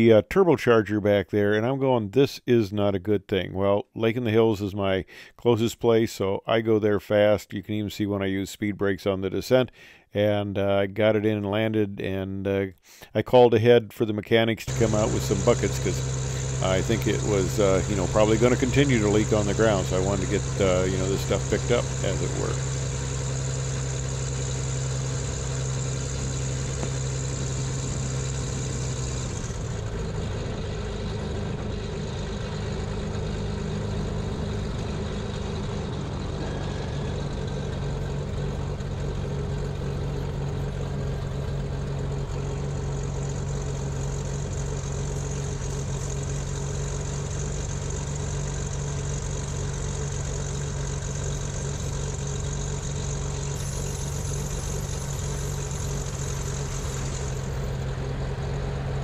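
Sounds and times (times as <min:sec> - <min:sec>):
twin piston aircraft engines droning: 0:14.7 - 0:59.0.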